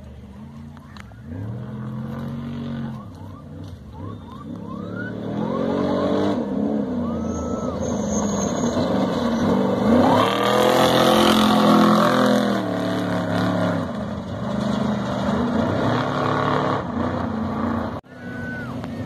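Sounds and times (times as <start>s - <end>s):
truck engine passing at full throttle: 0.0s - 19.0s.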